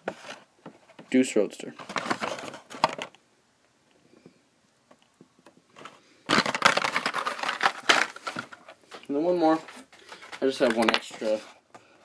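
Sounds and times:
crackling and clatter: 5.4 - 8.8
plastic blister pack crinkling: 5.8 - 11.4.

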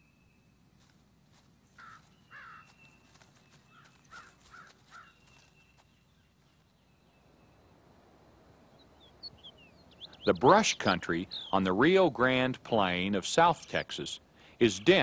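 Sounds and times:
crackling of dry leaf litter: 1.7 - 6.0
bird caws: 1.8 - 3.0, 3.7 - 5.5.

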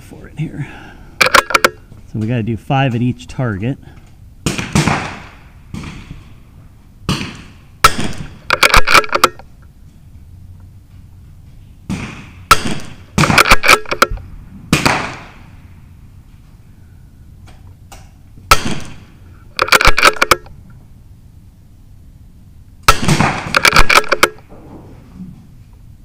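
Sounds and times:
metallic clicks of rifle bolt: 1.2 - 1.8, 8.4 - 9.5, 13.3 - 14.2, 19.6 - 20.5, 23.5 - 24.4
rifle shots: 1.2 - 1.8, 4.4 - 6.3, 7.1 - 9.4, 11.9 - 15.6, 18.5 - 20.5, 22.8 - 24.5
faint distant gunshots: 4.4 - 6.3, 7.1 - 9.2, 11.9 - 14.0, 14.7 - 15.6, 18.5 - 20.4, 22.8 - 24.5.

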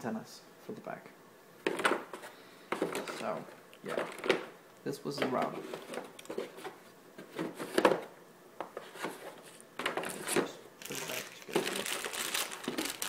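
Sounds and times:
plastic and cardboard rustling: 1.7 - 4.5, 5.1 - 8.1, 8.7 - 13.0.

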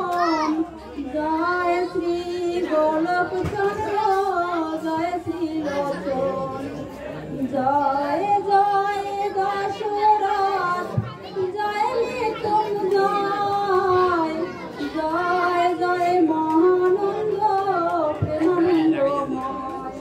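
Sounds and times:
woman singing a hymn: 0.0 - 20.0.

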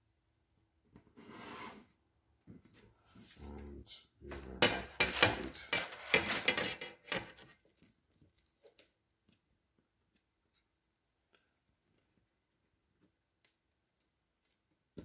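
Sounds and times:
metal ruler scraping on table: 1.2 - 1.9, 4.6 - 7.5.

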